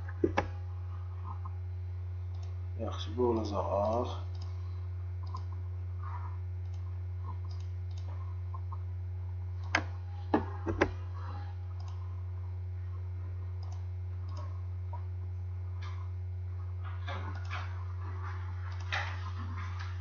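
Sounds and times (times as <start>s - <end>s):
steady low hum: 0.0s - 20.0s
computer mouse clicks: 0.2s - 0.5s, 2.3s - 2.6s, 3.8s - 4.6s, 5.2s - 5.5s, 6.6s - 8.7s, 9.6s - 11.0s, 11.8s - 12.0s, 13.6s - 14.5s, 17.1s - 17.7s, 18.7s - 19.1s.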